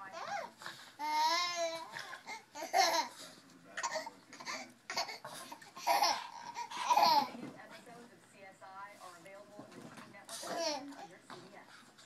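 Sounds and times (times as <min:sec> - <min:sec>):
baby laughing: 0:00.1 - 0:03.2, 0:03.8 - 0:07.4.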